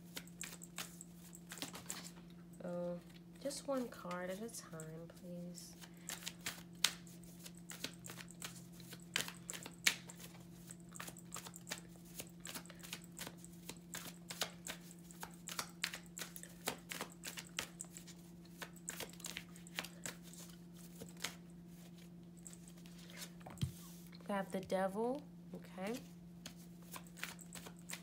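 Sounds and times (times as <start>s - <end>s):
cards being shuffled: 0.1s - 2.2s, 5.8s - 24.1s, 25.9s - 28.0s.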